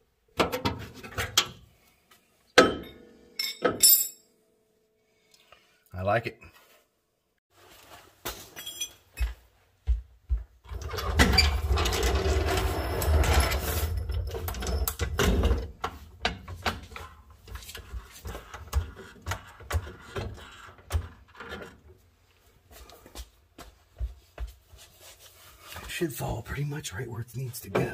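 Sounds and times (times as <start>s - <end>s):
floor jack rolling on concrete: 10.7s - 21.8s.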